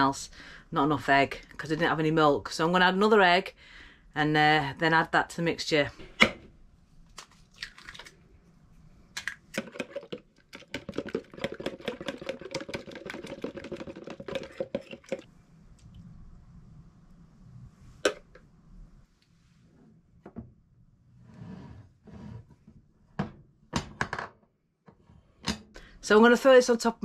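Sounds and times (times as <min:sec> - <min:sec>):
egg cracking: 0:07.1 - 0:08.3, 0:09.1 - 0:15.3
fork whisking in plastic jug: 0:09.6 - 0:15.3.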